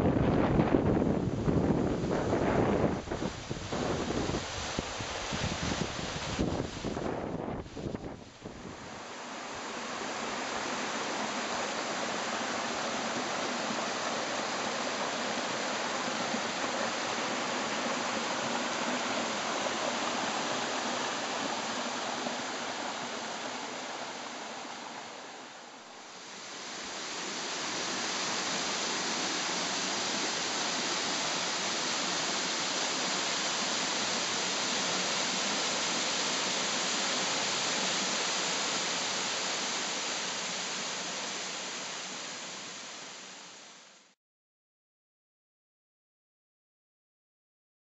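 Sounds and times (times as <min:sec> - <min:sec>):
creek cascading over rocks: 0:08.7 - 0:43.7.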